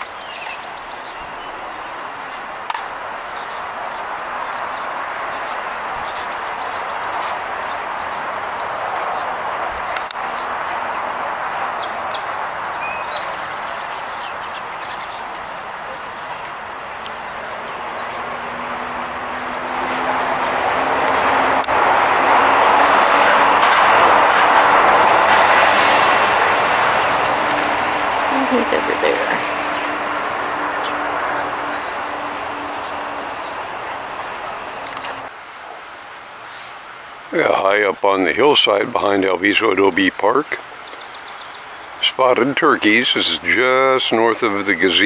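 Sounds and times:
small bird chirping: 0:00.0 - 0:22.2
traffic noise: 0:00.0 - 0:45.0
loud passing vehicle: 0:01.2 - 0:35.3.

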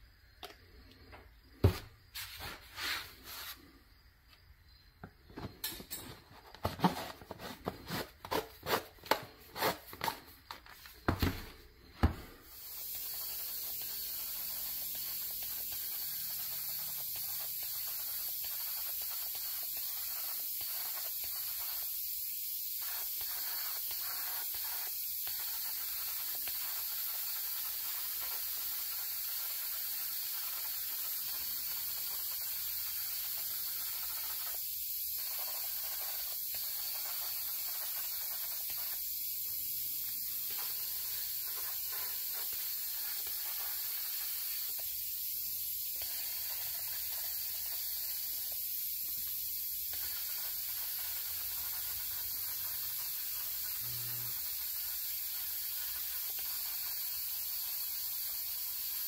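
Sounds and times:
paint spray hissing: 0:01.4 - 0:03.8, 0:12.2 - 0:59.0.

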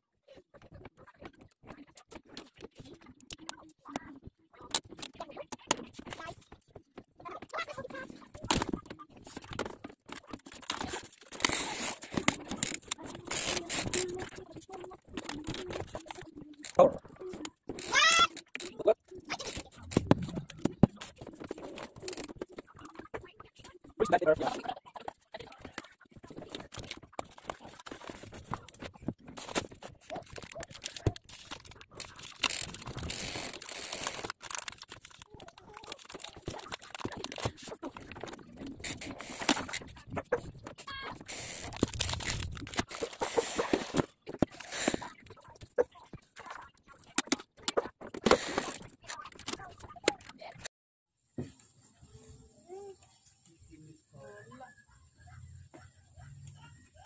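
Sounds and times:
plastic and foam packing rustling: 0:04.8 - 0:50.7
paper wrapper crinkling and tearing: 0:26.3 - 0:45.4.

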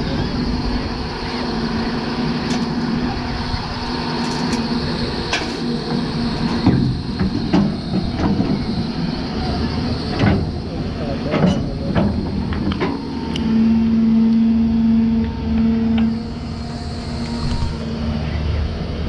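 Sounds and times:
excavator diesel engine running: 0:00.0 - 0:19.0
digging knocks and clanks: 0:11.2 - 0:13.0.

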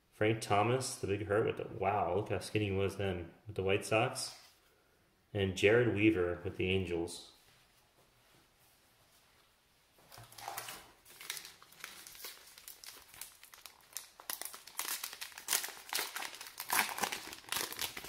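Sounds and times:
plastic wrapper crinkling: 0:10.1 - 0:18.0.

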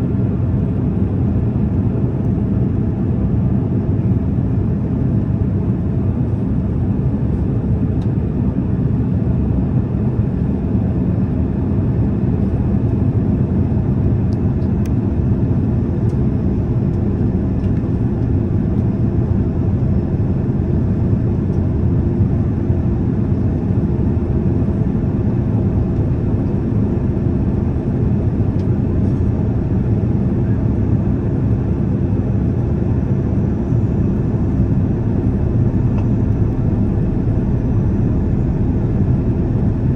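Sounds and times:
faint steady hum: 0:11.8 - 0:39.9
jet engines roaring: 0:15.2 - 0:39.9.

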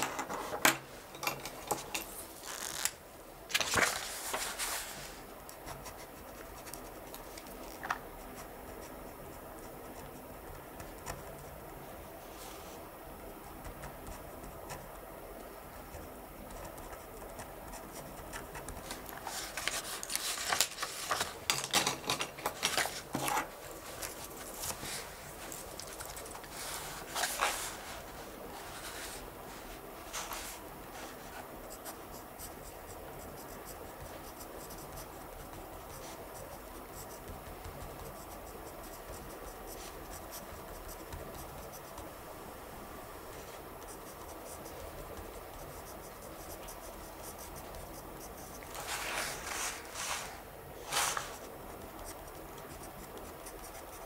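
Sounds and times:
pen scratching on paper: 0:31.4 - 0:42.2, 0:43.8 - 0:49.0.

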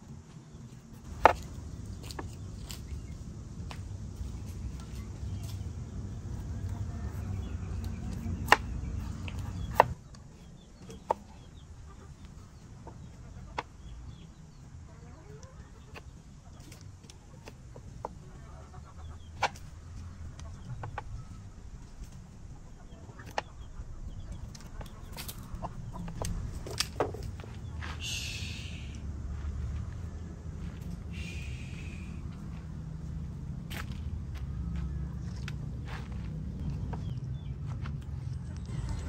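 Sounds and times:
chickens clucking: 0:00.4 - 0:39.0
knife chopping on wooden board: 0:08.1 - 0:10.0
low rumble: 0:19.1 - 0:39.0.

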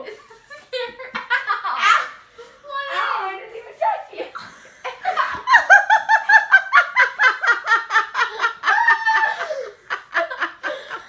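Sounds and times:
person laughing hard: 0:04.9 - 0:11.0.

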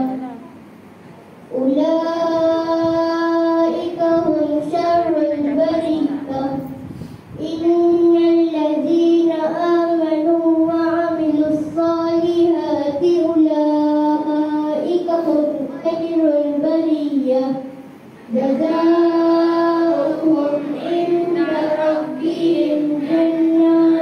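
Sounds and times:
children chanting melodically: 0:18.3 - 0:24.0.

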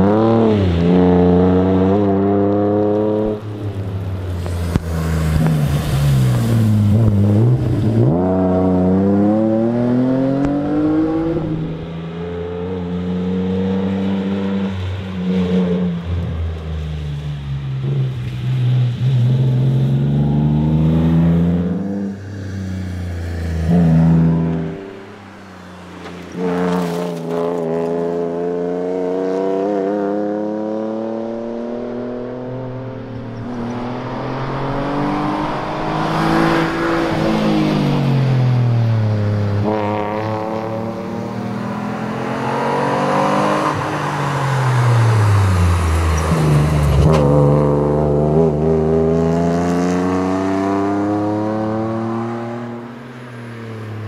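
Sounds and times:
rally car engine accelerating: 0:26.1 - 0:52.9.

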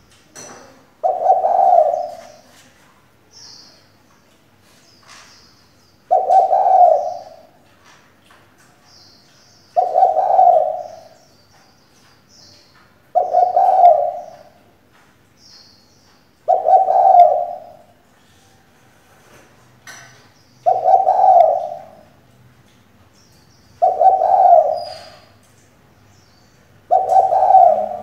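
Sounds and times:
dove cooing: 0:01.0 - 0:02.5, 0:06.1 - 0:07.6, 0:09.8 - 0:11.2, 0:13.1 - 0:14.6, 0:16.5 - 0:18.0, 0:20.6 - 0:22.2, 0:23.8 - 0:25.4, 0:26.8 - 0:28.0.

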